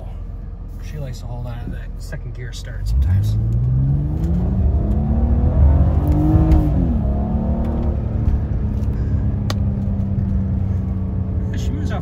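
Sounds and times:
car engine accelerating: 0.0 - 12.0.

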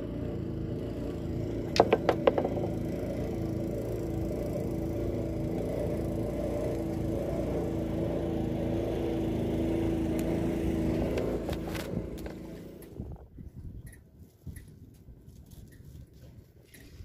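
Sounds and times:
small engine droning: 0.0 - 13.3.

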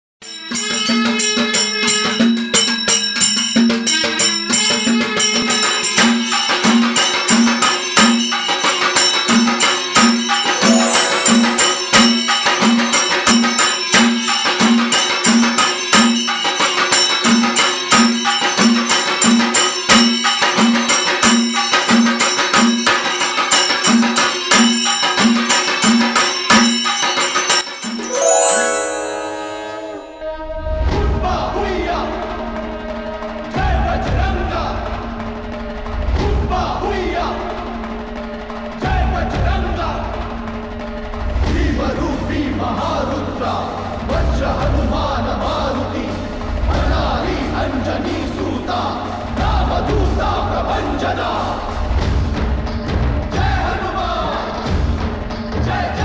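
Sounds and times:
instrumental music with percussion: 0.3 - 30.3.

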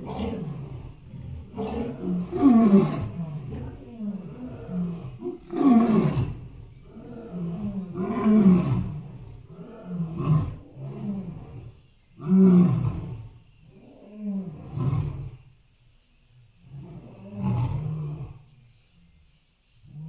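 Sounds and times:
elephant roaring: 0.0 - 11.7.

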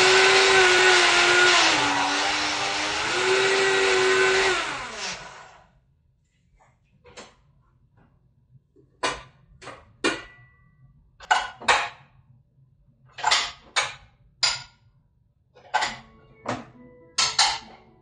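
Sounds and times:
utensils and cookware clinking: 15.6 - 17.9.

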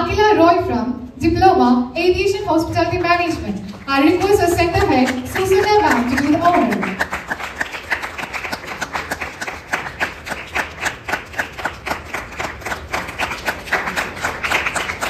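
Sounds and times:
audience clapping: 3.0 - 15.0.

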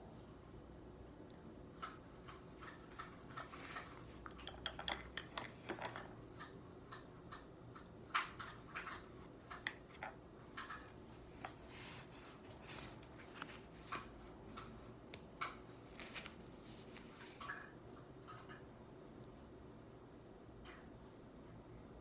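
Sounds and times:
painting supplies clicking and tapping: 1.6 - 11.6.

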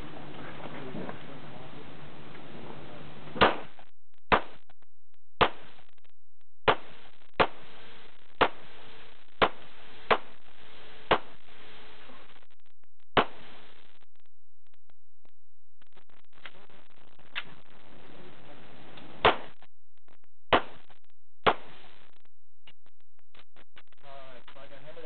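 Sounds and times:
handgun shots: 3.4 - 3.7, 4.3 - 4.6, 5.4 - 5.6, 13.2 - 13.4, 19.2 - 19.5, 20.5 - 20.8, 21.4 - 21.7.

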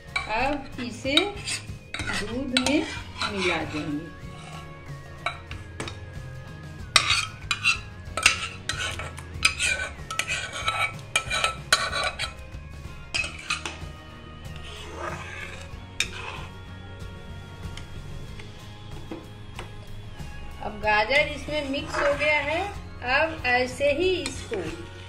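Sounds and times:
metal spoon scraping a pot: 0.0 - 16.7, 21.0 - 25.0
spoon clinking on metal: 0.1 - 3.9, 7.0 - 12.4, 13.1 - 13.8.

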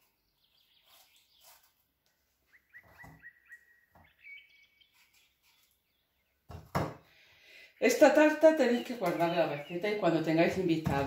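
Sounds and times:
bird chirping: 0.0 - 6.6, 7.6 - 11.0
knife scraping apple peel: 0.8 - 1.9.

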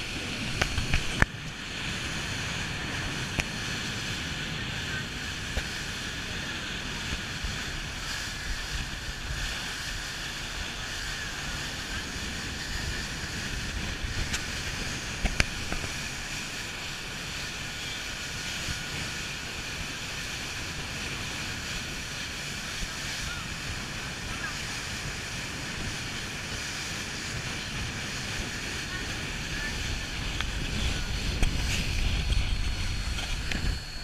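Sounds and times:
water streaming off boat hull: 0.0 - 34.0
wind on microphone: 0.0 - 34.0
low rumble: 26.9 - 34.0.

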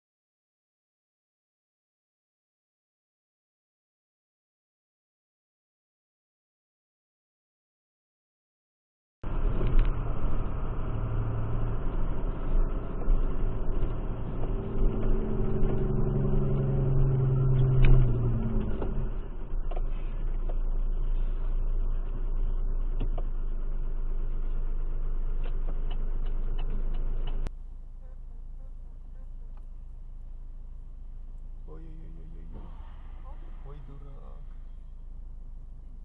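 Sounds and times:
road rumble: 9.2 - 36.0
vehicle engine: 9.2 - 36.0.

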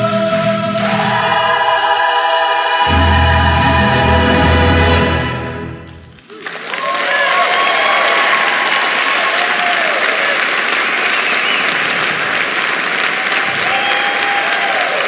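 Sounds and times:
audience applauding: 5.9 - 15.0
short cheers: 6.3 - 12.0, 13.1 - 15.0.

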